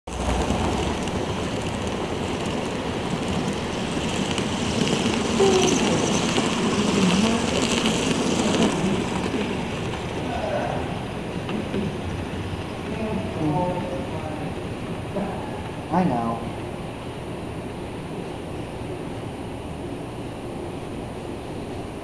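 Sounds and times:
model train wheels rumbling: 0:00.1 - 0:16.8
faint voices: 0:05.3 - 0:11.2.

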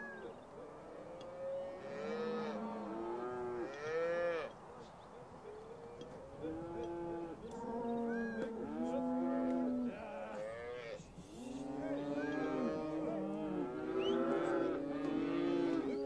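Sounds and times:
cattle mooing: 0:06.4 - 0:16.0.

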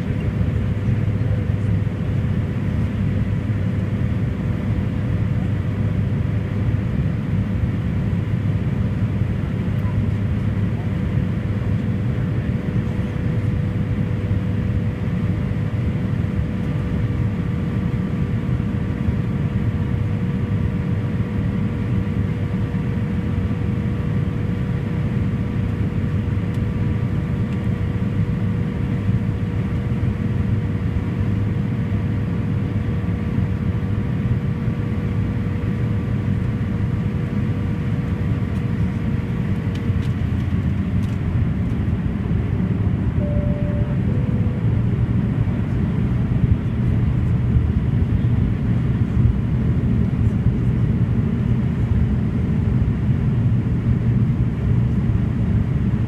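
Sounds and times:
steady engine whine: 0:00.0 - 0:56.0
turboprop engines droning: 0:00.0 - 0:56.0.

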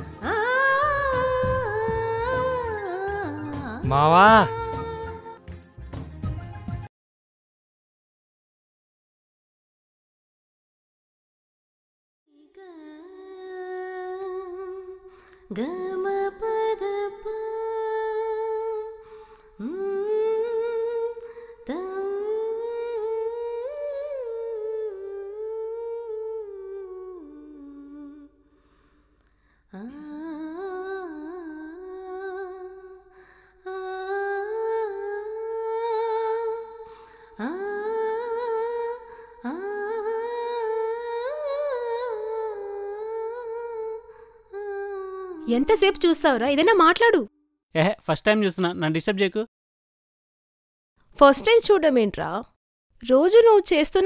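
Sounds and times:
person humming slow melody: 0:03.8 - 0:04.8, 0:22.0 - 0:28.4.

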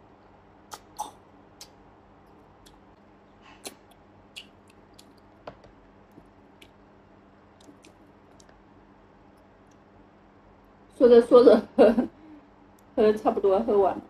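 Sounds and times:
chewing: 0:02.6 - 0:05.3, 0:07.6 - 0:08.6.

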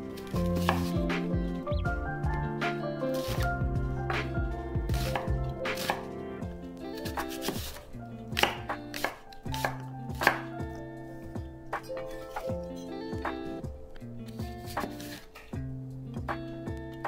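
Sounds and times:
soft background music: 0:00.0 - 0:17.0
knife chopping on wooden board: 0:00.3 - 0:01.2, 0:03.2 - 0:03.4, 0:04.9 - 0:06.1, 0:07.0 - 0:10.5, 0:14.6 - 0:15.2.

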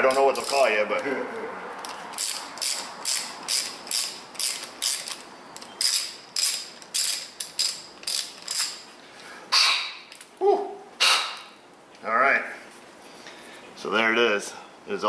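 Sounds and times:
ratcheting tap wrench clicking: 0:01.8 - 0:08.8.

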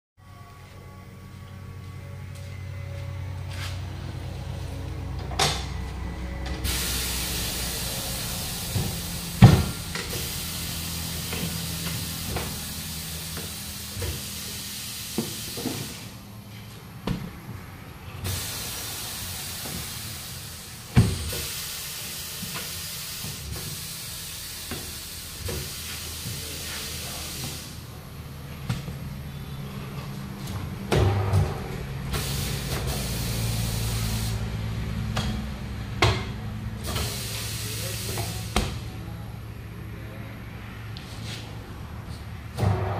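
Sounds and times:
hiss of escaping air: 0:06.6 - 0:16.2, 0:18.2 - 0:27.8, 0:32.1 - 0:34.4, 0:36.8 - 0:38.5.

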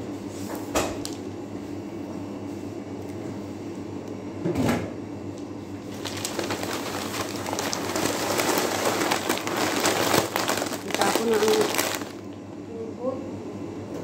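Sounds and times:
newspaper rustling and crinkling: 0:05.8 - 0:12.4.

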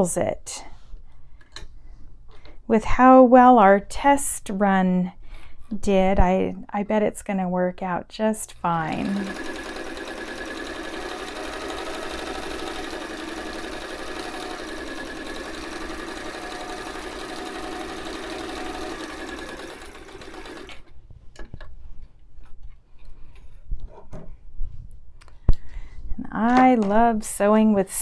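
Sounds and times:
sewing machine running: 0:08.9 - 0:20.9.

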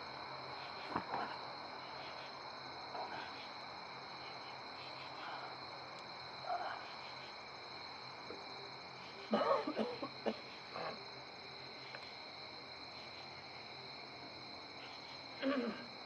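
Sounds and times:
crickets and night insects chirring: 0:00.0 - 0:16.0.

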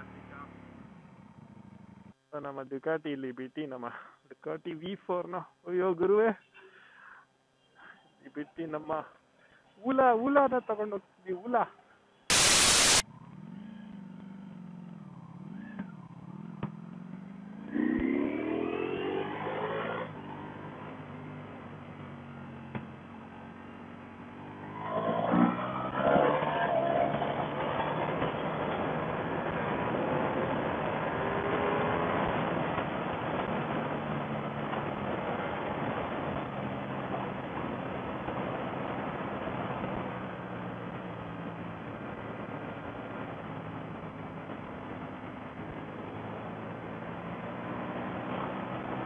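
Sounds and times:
motorcycle engine running: 0:00.0 - 0:02.1, 0:13.0 - 0:19.2
motorcycle engine revving: 0:12.3 - 0:37.4, 0:38.0 - 0:49.0.

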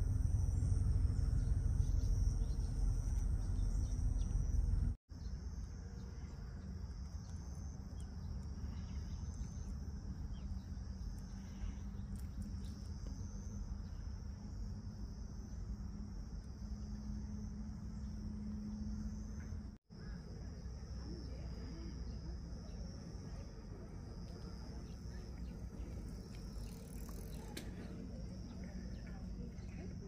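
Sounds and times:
heavy low rumble: 0:00.0 - 0:05.0
crickets chirring: 0:00.0 - 0:30.0
soft hum: 0:00.0 - 0:30.0.

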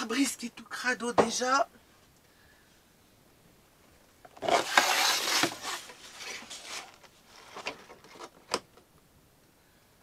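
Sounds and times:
window blind rustling slide: 0:04.4 - 0:07.8.

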